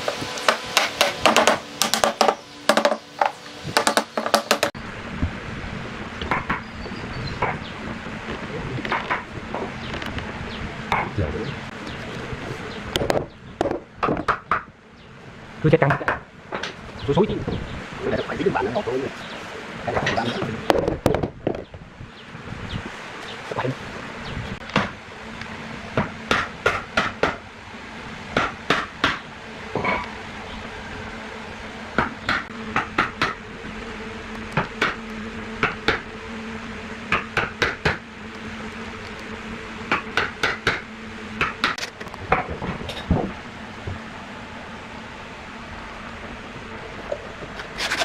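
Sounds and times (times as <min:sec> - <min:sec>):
sharp knocks: 0:00.5 - 0:04.7, 0:26.0 - 0:27.4.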